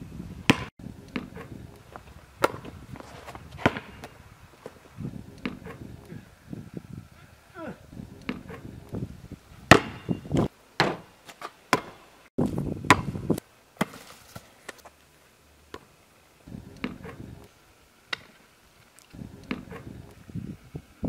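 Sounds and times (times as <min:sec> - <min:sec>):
basketball bouncing on asphalt: 0:00.4 - 0:06.0, 0:08.2 - 0:08.8, 0:09.7 - 0:11.1, 0:11.7 - 0:14.4, 0:16.8 - 0:17.3.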